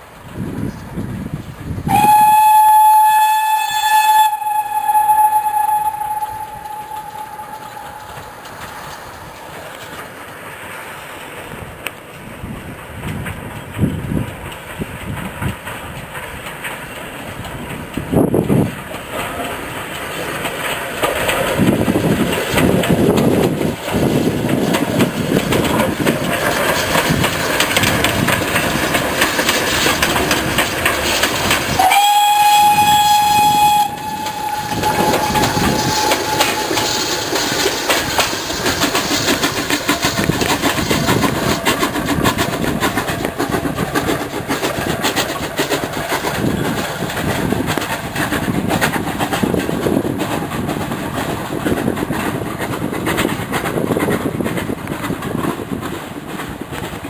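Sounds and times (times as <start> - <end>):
train rumbling on rails: 0.0 - 57.0
steam whistle: 1.9 - 8.8, 31.8 - 38.0.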